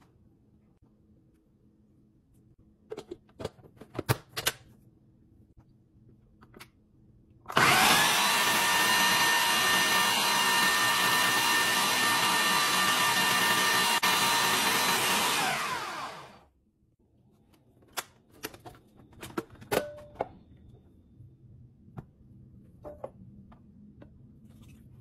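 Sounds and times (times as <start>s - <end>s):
blender motor whining: 7.5s - 16.5s.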